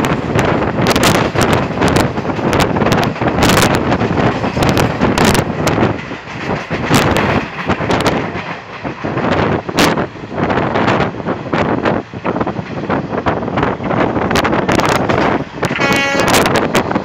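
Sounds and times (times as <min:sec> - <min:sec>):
train running noise: 0:00.0 - 0:17.0
wind buffeting microphone: 0:00.0 - 0:17.0
wheels knocking and clattering: 0:00.9 - 0:10.0.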